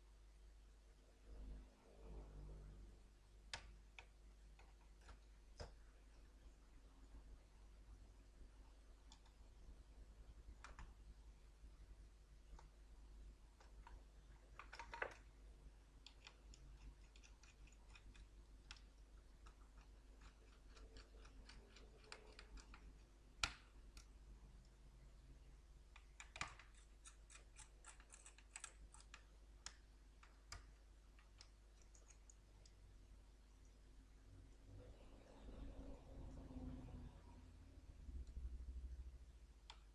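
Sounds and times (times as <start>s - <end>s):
small ticks: 16.0s - 24.8s, 25.9s - 32.8s.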